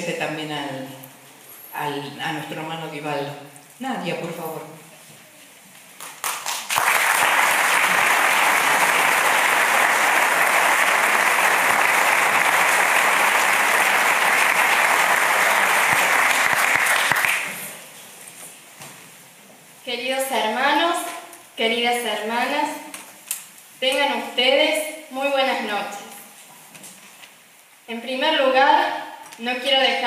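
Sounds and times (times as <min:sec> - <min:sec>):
audience applauding: 0:06.0 - 0:17.7.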